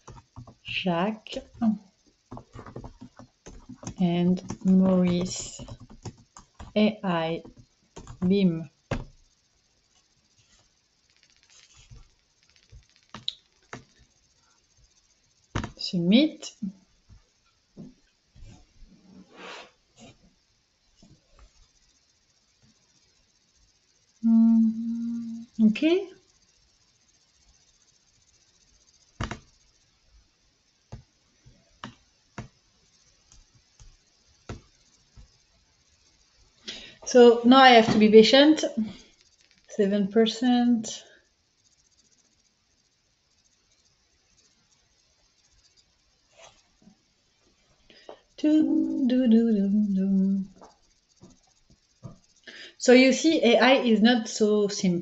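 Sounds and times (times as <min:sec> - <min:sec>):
typing on computer keyboard: 0:00.0 - 0:00.6, 0:02.3 - 0:06.8, 0:07.4 - 0:08.4
sharp clicks: 0:12.4 - 0:14.0
sharp clicks and knocks: 0:29.2 - 0:29.6.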